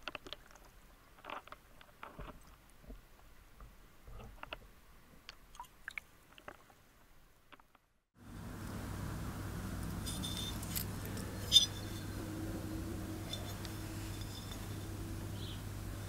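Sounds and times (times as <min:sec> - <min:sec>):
steady low hum: 0:08.2 - 0:16.0
small brass parts clinking: 0:09.9 - 0:12.2, 0:13.1 - 0:15.6.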